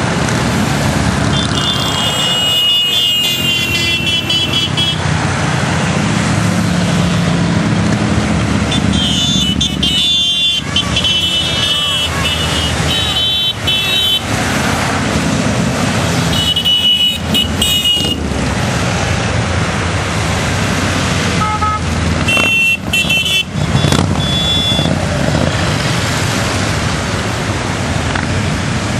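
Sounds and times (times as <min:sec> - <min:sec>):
motorcycles passing: 0:00.0 - 0:28.9
horns tooting: 0:01.2 - 0:05.1, 0:08.6 - 0:14.5, 0:16.0 - 0:18.4, 0:21.3 - 0:25.8.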